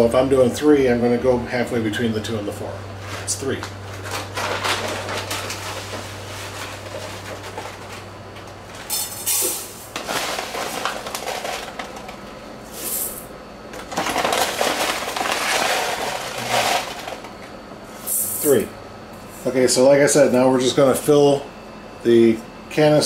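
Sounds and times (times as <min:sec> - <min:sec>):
plastic bag crinkling: 0:09.9 - 0:12.2, 0:13.9 - 0:17.2.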